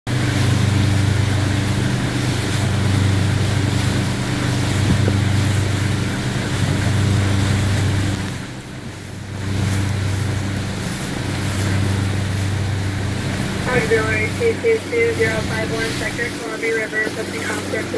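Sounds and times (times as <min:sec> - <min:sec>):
boat engine droning: 0:00.1 - 0:17.9
water rushing along hull: 0:00.1 - 0:17.9
wind on microphone: 0:00.2 - 0:14.5.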